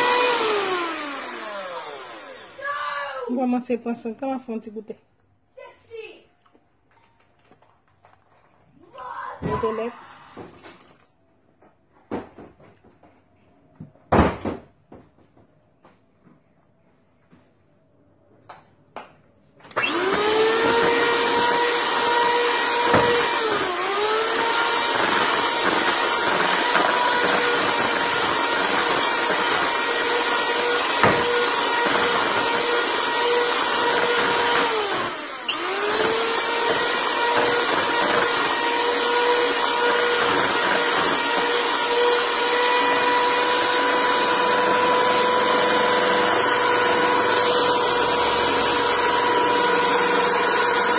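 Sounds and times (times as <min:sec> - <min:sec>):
electric hand mixer whining: 0:00.0 - 0:03.0, 0:19.7 - 0:50.9.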